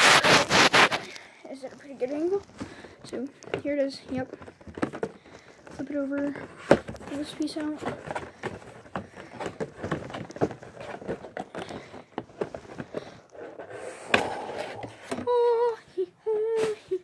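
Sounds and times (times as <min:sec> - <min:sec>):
plastic packaging crackling: 0:00.0 - 0:01.3.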